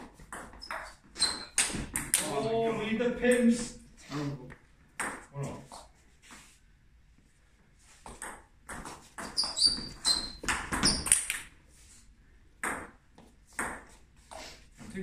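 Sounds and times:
table tennis ball hits: 0.2 - 2.3, 5.0 - 5.3, 8.1 - 11.5, 12.6 - 13.9.

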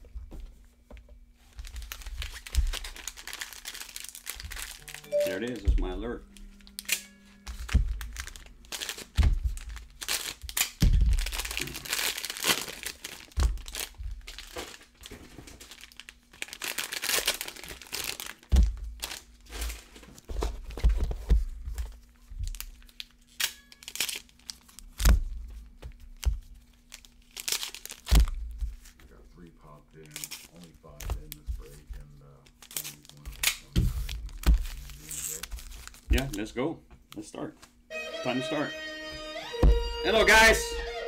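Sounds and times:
plastic wrap tearing and crumpling: 1.4 - 5.1, 6.6 - 20.7, 21.9 - 29.0, 30.0 - 31.5, 32.4 - 36.4
foil packs crinkling: 1.4 - 5.6, 6.6 - 20.8, 21.8 - 29.0, 29.9 - 36.5.

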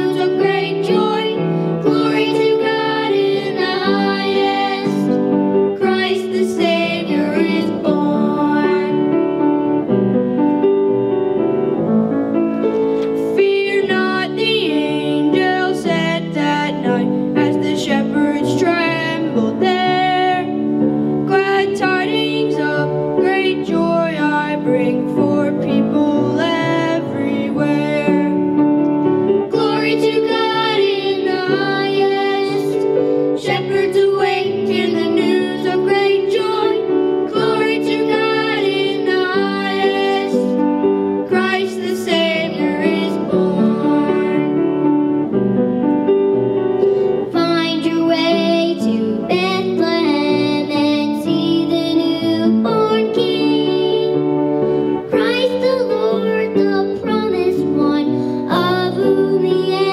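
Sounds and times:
children singing into microphones: 0.0 - 9.0, 29.5 - 40.6, 41.2 - 44.5, 47.3 - 54.2, 55.1 - 59.9
instrumental accompaniment: 0.0 - 58.5.

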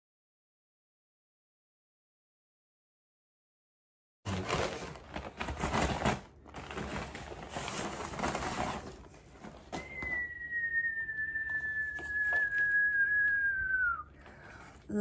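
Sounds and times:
packing paper crinkling: 4.3 - 10.4, 11.6 - 14.9
whistle-like tone: 9.7 - 14.1.

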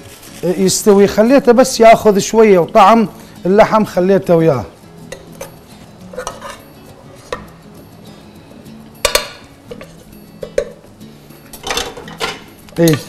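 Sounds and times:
metal utensils clinking on cookware: 5.1 - 7.5, 9.0 - 10.8, 11.5 - 13.0.

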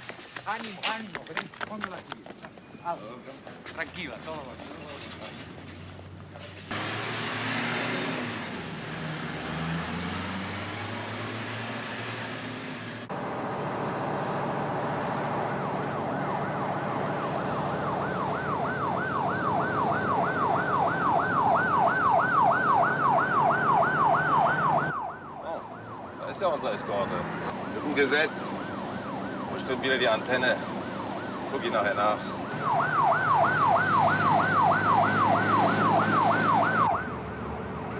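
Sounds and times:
traffic noise: 0.0 - 37.9
police siren wailing: 14.8 - 37.9.

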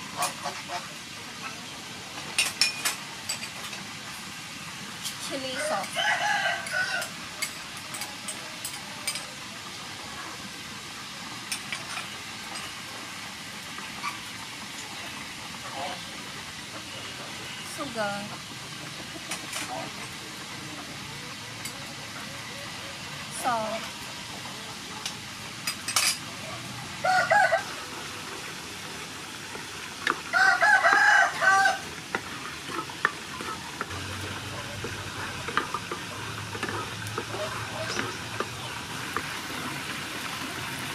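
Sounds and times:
sauce sizzling in frying pan: 0.0 - 40.9
rooster crowing: 5.6 - 7.2, 27.0 - 27.9, 30.3 - 31.9
wooden spatula stirring: 30.1 - 39.4.

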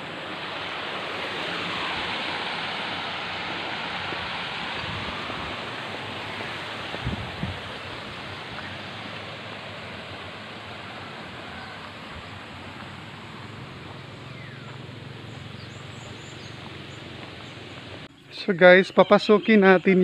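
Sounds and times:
flowing water rushing: 0.0 - 18.1
faint bird chirps: 14.0 - 20.0.

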